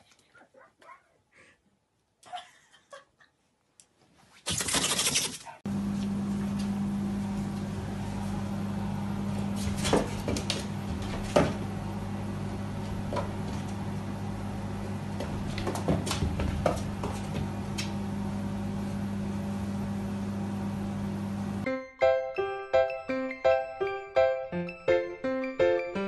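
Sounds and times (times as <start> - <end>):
low electrical hum: 5.7 - 21.6.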